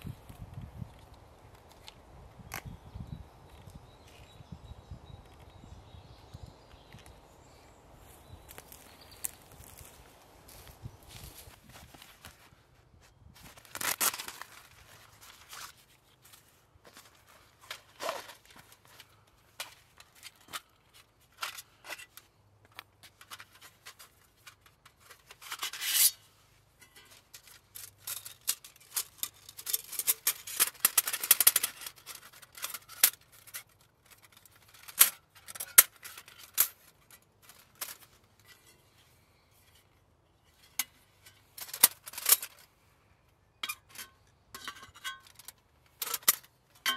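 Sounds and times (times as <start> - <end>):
metal stove plates clinking: 43.6 - 46.9.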